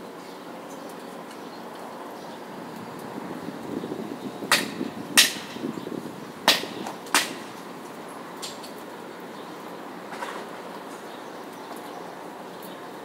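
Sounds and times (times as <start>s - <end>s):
low city hum: 0.0s - 13.0s
sharp knocks: 4.5s - 5.6s, 6.5s - 7.5s.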